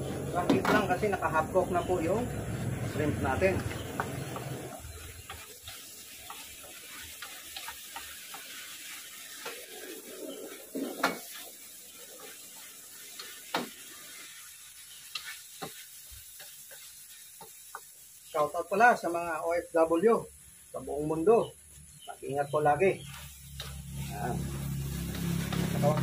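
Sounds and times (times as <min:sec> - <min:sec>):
spatula scraping wok: 0:00.0 - 0:18.3, 0:23.0 - 0:26.0
shrimp sizzling in a wok: 0:00.0 - 0:26.0
spatula knocking on wok: 0:03.6 - 0:04.6.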